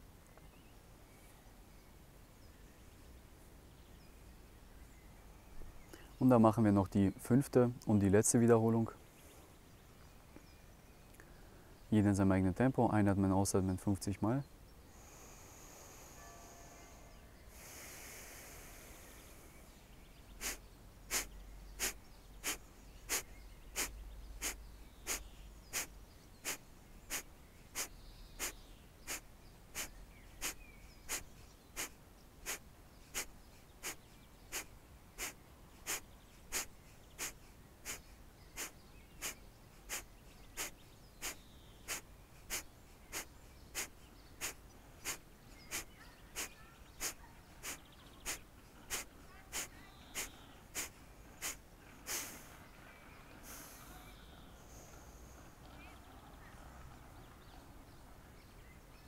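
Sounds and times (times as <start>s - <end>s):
quiet inhalations: 5.8s - 6.2s, 11.1s - 11.9s, 14.8s - 55.5s
forceful nasal exhalations: 17.5s - 19.6s, 20.4s - 52.6s, 53.4s - 54.1s.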